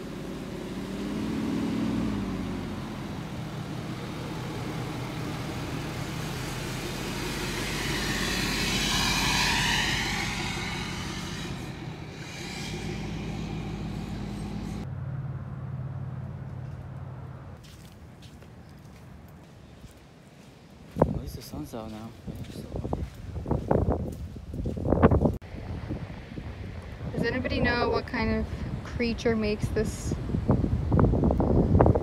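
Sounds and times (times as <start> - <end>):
pickup truck engine: 0.0 - 17.6.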